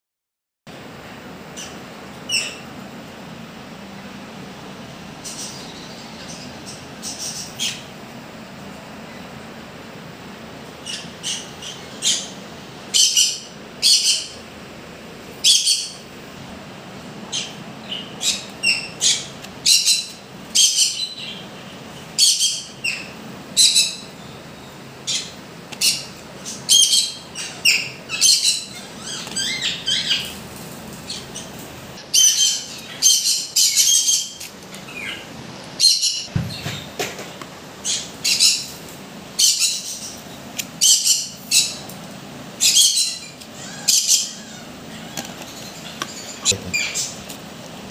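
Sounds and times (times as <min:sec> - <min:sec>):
parrots squawking: 0:10.8 - 0:14.4, 0:15.4 - 0:16.0, 0:17.2 - 0:21.4, 0:22.2 - 0:24.2, 0:25.0 - 0:30.4, 0:31.1 - 0:36.3, 0:37.8 - 0:38.8, 0:39.4 - 0:40.2, 0:40.8 - 0:41.8, 0:42.6 - 0:47.3.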